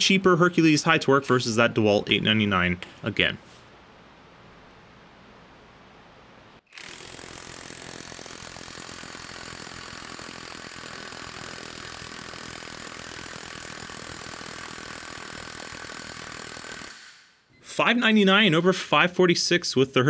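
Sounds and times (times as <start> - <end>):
impact wrench hammering: 6.8 - 17.3.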